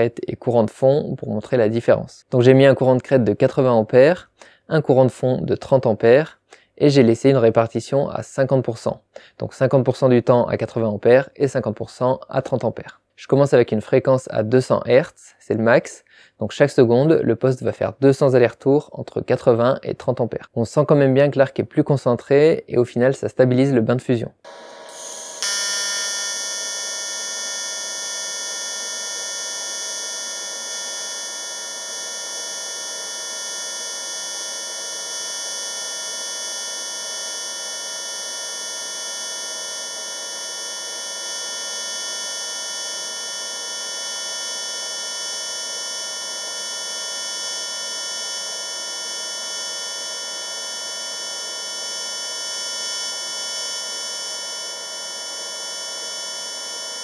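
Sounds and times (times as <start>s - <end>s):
welding arc buzzing: 24.5s - 57.0s.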